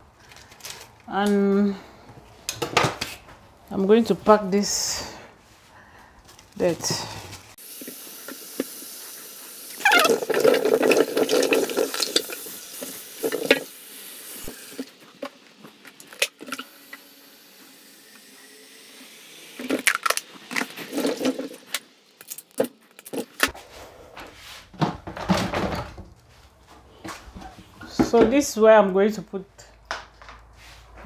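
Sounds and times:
kitchenware knocks and clatters: 0:24.8 - 0:26.1.

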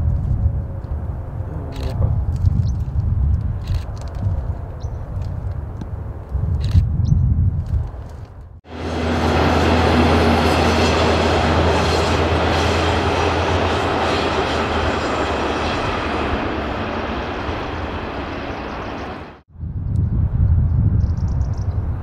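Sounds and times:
electric train running on rails: 0:08.7 - 0:19.4.

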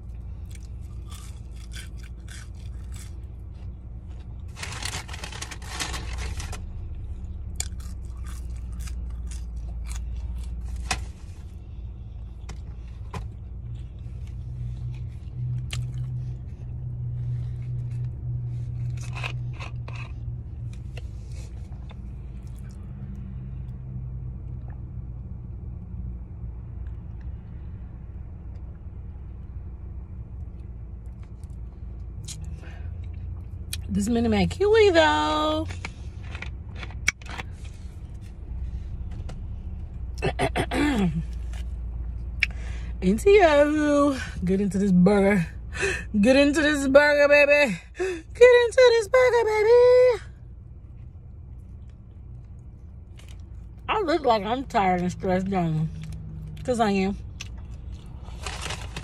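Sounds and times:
person chewing fries: 0:00.0 - 0:11.2, 0:13.7 - 0:16.4, 0:17.6 - 0:21.0, 0:51.4 - 0:53.8, 0:57.3 - 0:59.0
low rumble inside car: 0:00.0 - 0:59.0
crackles: 0:04.5 - 0:06.6, 0:57.4 - 0:59.0.

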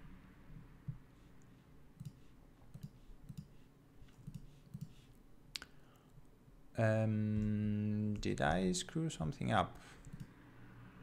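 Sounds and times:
computer mouse clicks: 0:00.9 - 0:05.2, 0:10.0 - 0:10.4.

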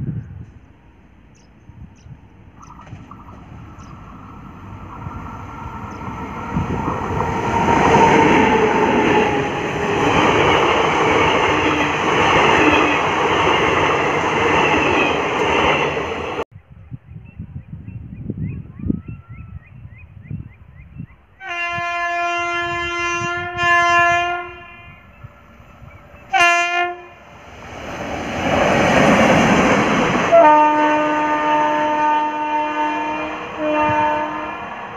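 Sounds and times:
train passing at speed: 0:00.0 - 0:16.5, 0:21.8 - 0:34.9
train horn blasts: 0:21.4 - 0:25.2, 0:26.3 - 0:27.3, 0:30.3 - 0:34.7.

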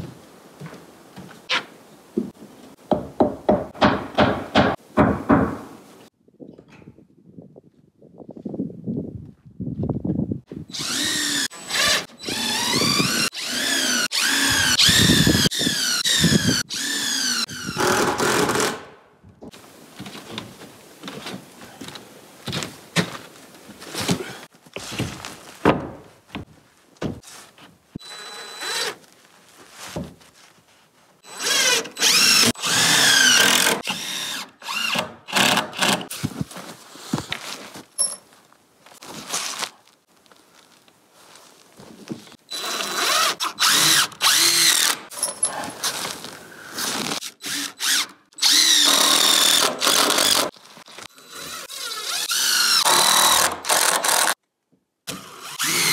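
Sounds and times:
power drill driving screws: 0:10.7 - 0:18.9, 0:28.0 - 0:29.0, 0:31.2 - 0:36.1, 0:42.5 - 0:45.2, 0:46.8 - 0:54.4, 0:55.1 - 0:55.9.

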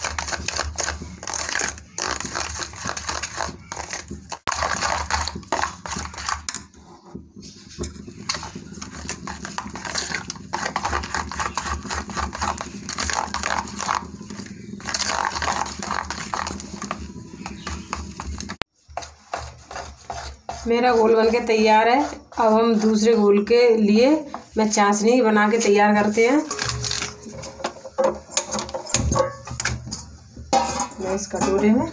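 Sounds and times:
hand squelching batter in bowl: 0:00.0 - 0:24.6.

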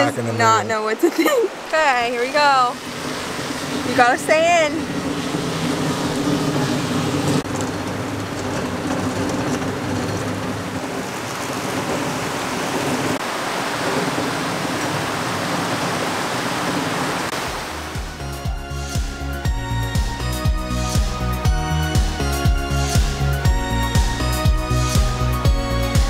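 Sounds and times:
fast river rushing: 0:00.0 - 0:20.3.

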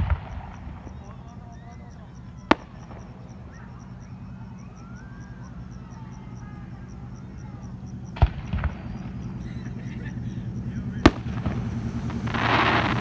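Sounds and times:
firework bang: 0:00.0 - 0:01.3, 0:02.4 - 0:03.6, 0:08.1 - 0:09.9, 0:11.0 - 0:13.0
distant rising and falling tones: 0:00.0 - 0:13.0
low rumble: 0:02.0 - 0:13.0.

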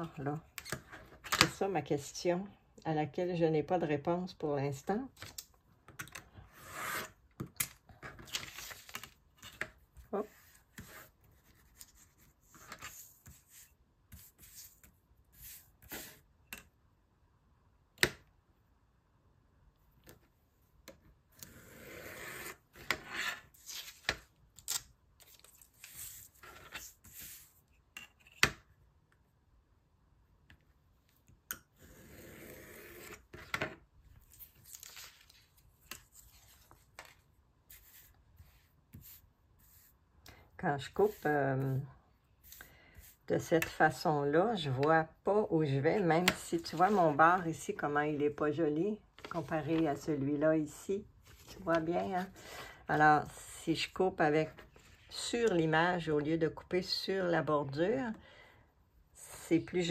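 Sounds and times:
paper rustling: 0:34.2 - 0:39.9.

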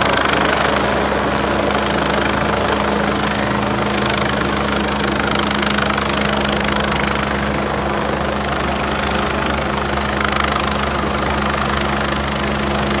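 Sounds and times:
helicopter flying overhead: 0:00.0 - 0:13.0.

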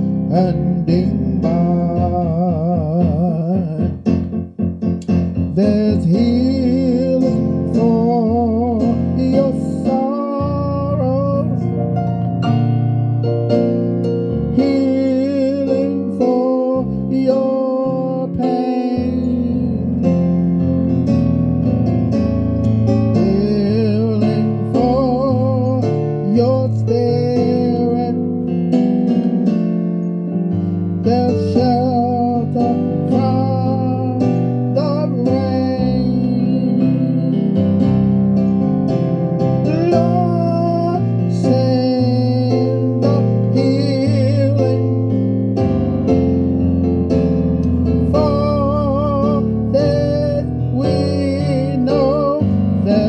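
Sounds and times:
piano accompaniment: 0:00.0 - 0:53.0
person singing with vibrato: 0:05.4 - 0:11.8, 0:14.5 - 0:20.3, 0:23.2 - 0:28.4, 0:31.0 - 0:37.8, 0:39.6 - 0:45.2, 0:48.0 - 0:53.0.

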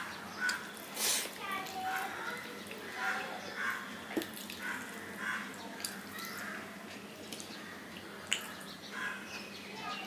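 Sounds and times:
crows cawing: 0:02.1 - 0:06.7, 0:07.6 - 0:09.3.

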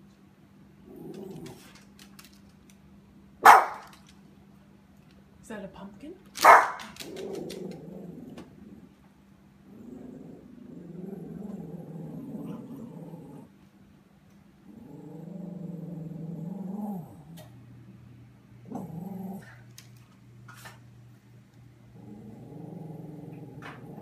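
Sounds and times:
dog growling: 0:00.8 - 0:02.3, 0:06.8 - 0:09.0, 0:09.6 - 0:13.6, 0:14.6 - 0:17.5, 0:18.6 - 0:19.7, 0:21.8 - 0:24.0.

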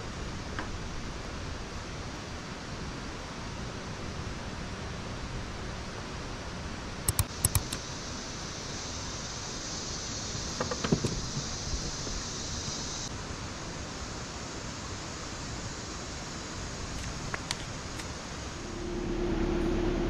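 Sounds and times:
rushing noise: 0:07.1 - 0:20.0
engine hum: 0:16.7 - 0:20.0.

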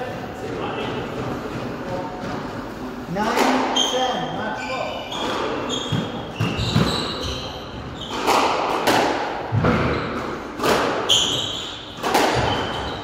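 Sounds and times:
shoes squeaking on wooden floor: 0:03.8 - 0:08.6, 0:09.6 - 0:10.4, 0:11.1 - 0:13.0
squash ball cracking off rackets: 0:10.5 - 0:11.4, 0:12.0 - 0:12.7.

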